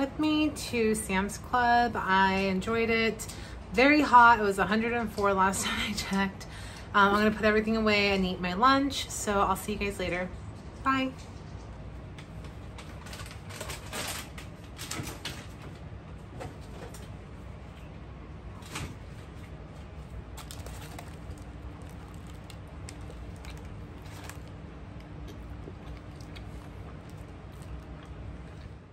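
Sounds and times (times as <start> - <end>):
steady low hum: 0.0 - 28.9
groceries knocking and rustling: 12.2 - 17.2, 18.5 - 28.0
paper wrapper crinkling: 19.9 - 27.8.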